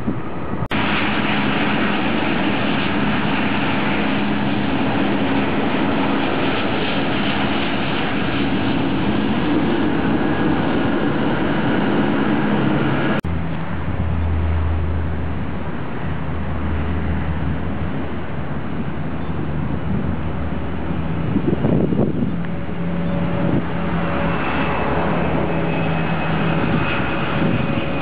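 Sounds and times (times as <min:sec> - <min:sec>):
jet engine noise: 0:00.0 - 0:28.0
deep low rumble: 0:12.3 - 0:28.0.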